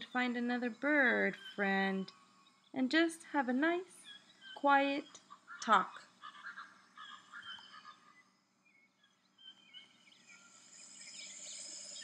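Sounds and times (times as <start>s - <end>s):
animal chirps: 4.0s - 8.3s
croak-like calls: 4.0s - 8.3s
high hiss: 10.1s - 12.0s.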